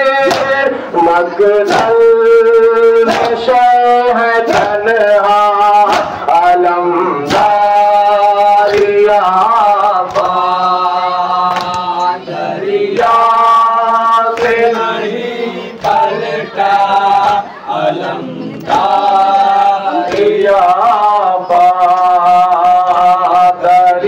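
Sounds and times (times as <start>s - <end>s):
men chanting a lament in unison: 0.0s - 24.0s
chest-beating slaps: 0.2s - 0.6s, 1.6s - 2.0s, 3.1s - 3.5s, 4.4s - 4.8s, 5.8s - 6.3s, 7.3s - 7.7s, 8.6s - 9.0s, 10.0s - 10.5s, 11.4s - 11.9s, 14.3s - 14.9s, 15.8s - 16.1s, 17.1s - 17.5s, 20.0s - 20.5s.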